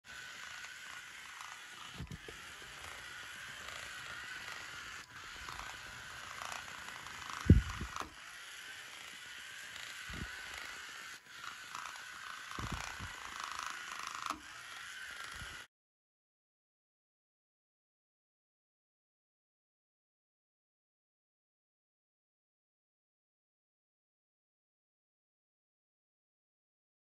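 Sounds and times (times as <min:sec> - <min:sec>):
small gear motors whining: 0:00.0 - 0:15.7.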